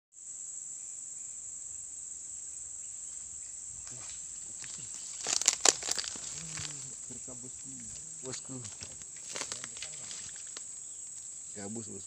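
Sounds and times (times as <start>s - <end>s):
insects droning: 0.1s - 12.0s
faint rustles: 2.9s - 11.7s.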